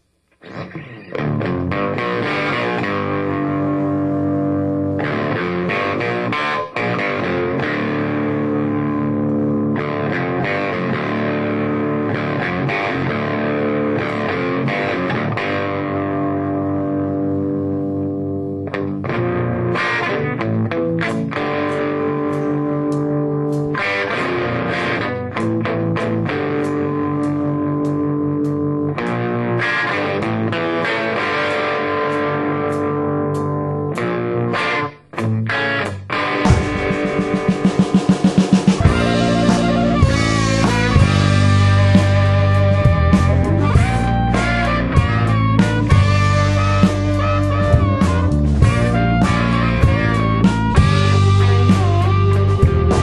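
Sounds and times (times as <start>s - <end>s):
distorted electric guitars playing rock: 0.0s - 53.0s.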